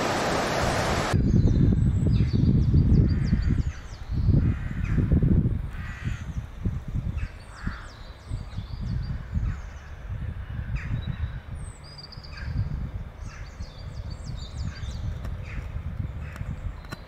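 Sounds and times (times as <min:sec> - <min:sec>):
sea rumble: 0:00.0 - 0:01.2
wind: 0:00.0 - 0:17.0
bird calls and chirps: 0:01.2 - 0:05.0, 0:07.1 - 0:17.0.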